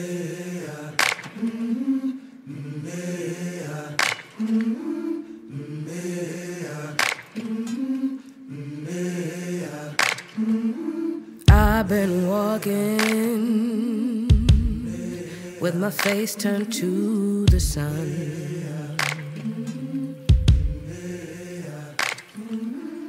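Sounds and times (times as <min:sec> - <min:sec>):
chant-like group vocals: 0:00.0 - 0:23.0
sharp percussive hits: 0:19.0 - 0:19.4.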